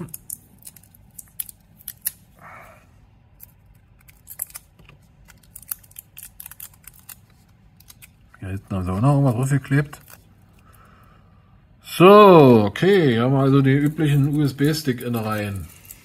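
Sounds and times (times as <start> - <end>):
tape peeling clicks and crackles: 0.0 - 2.3, 3.3 - 10.7.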